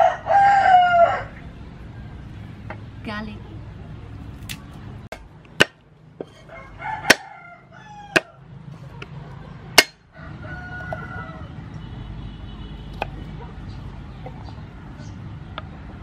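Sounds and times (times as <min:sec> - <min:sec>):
rooster crowing: 0:00.0 - 0:01.4, 0:06.3 - 0:08.5, 0:10.0 - 0:11.7
chickens clucking: 0:06.2 - 0:11.6, 0:13.0 - 0:16.0.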